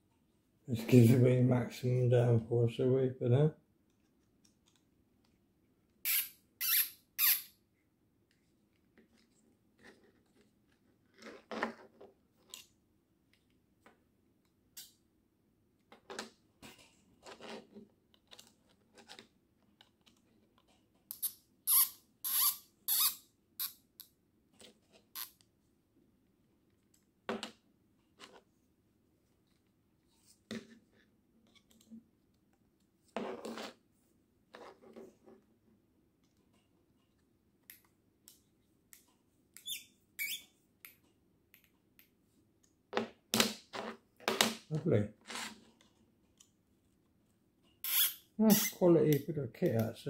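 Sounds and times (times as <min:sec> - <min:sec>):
short high squeaky scrapes: 0:06.0 - 0:07.6, 0:21.2 - 0:23.7, 0:39.6 - 0:40.5, 0:47.8 - 0:48.8.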